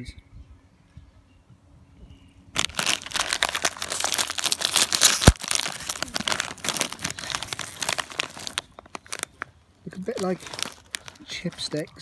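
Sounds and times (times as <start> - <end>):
bag popping: 2.6 - 9.5, 10.1 - 11.8
foil snack bag crinkling: 2.6 - 12.0.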